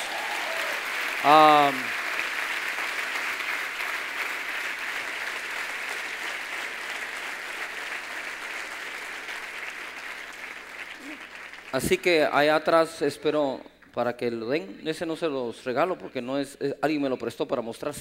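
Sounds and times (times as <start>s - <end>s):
large audience applauding: 0.0s - 12.3s.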